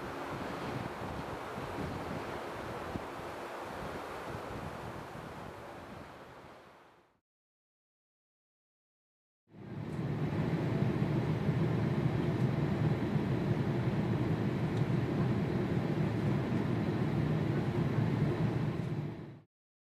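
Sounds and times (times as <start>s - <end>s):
jet engines rumbling: 9.6s - 19.4s.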